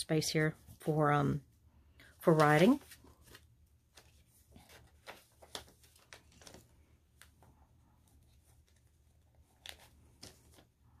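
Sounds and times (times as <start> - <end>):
paper pages rustling: 2.2 - 11.0.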